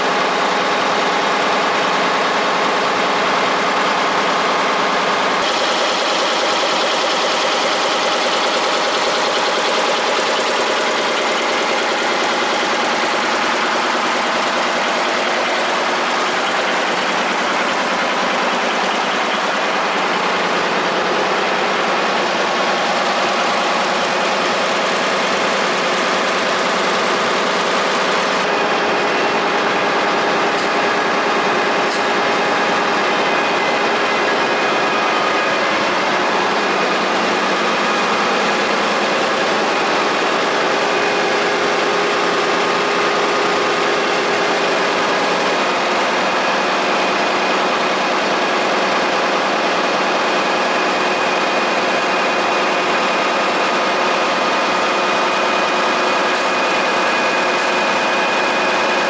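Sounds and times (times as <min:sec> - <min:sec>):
machine hums and whines: 0:00.0 - 0:59.0
printing press mechanical din: 0:00.0 - 0:59.0.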